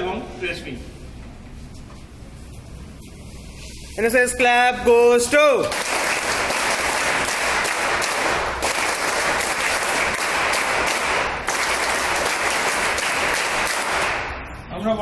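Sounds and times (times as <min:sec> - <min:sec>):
crowd applauding: 0:05.7 - 0:14.4.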